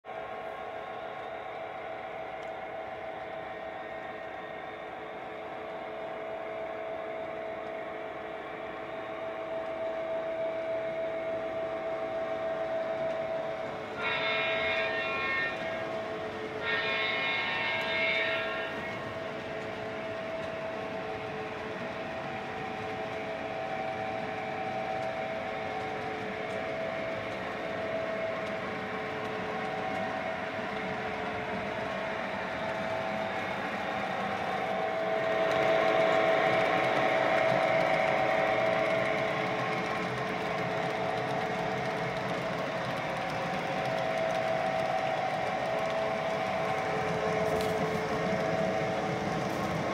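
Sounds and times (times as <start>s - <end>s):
locomotive engine hum: 0.1s - 49.9s
train horn blasts: 9.1s - 21.5s, 42.9s - 49.9s.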